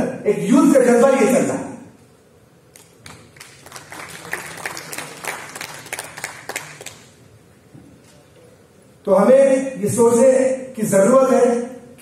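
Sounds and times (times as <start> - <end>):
audience applauding: 3.0 - 7.2.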